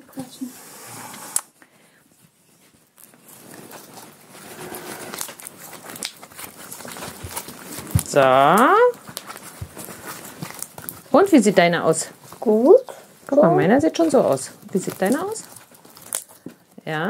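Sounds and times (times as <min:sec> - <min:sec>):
slime crackling as kneaded: 0:03.7 - 0:17.0.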